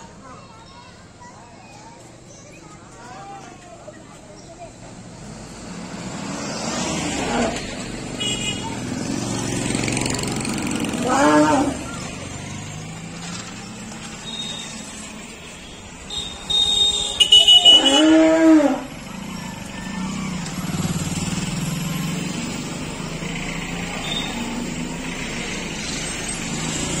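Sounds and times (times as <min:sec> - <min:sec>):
elephant calling: 0:10.9 - 0:12.0, 0:16.2 - 0:20.5.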